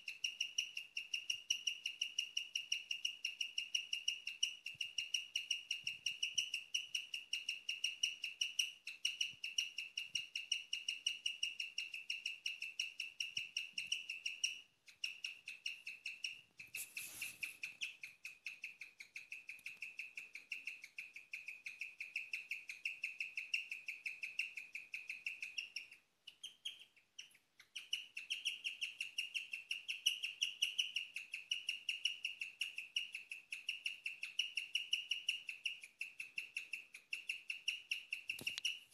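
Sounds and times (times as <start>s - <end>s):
guinea pig chirping: 0.0s - 38.9s.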